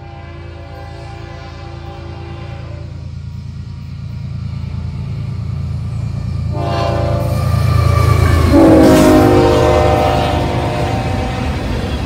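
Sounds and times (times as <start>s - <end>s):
train air horn chord: 0.0s - 3.0s, 6.5s - 7.5s, 8.3s - 11.6s
diesel locomotive engine rumbling: 0.0s - 12.0s.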